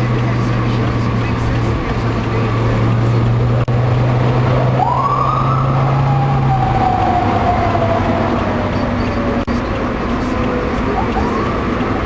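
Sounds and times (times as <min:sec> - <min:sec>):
road and engine noise: 0:00.0 - 0:12.0
police siren wail: 0:04.2 - 0:12.0.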